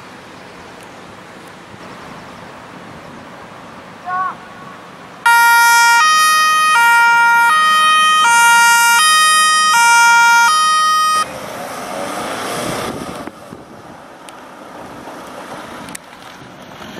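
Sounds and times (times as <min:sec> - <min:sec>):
two-tone siren: 0:05.3 - 0:11.3.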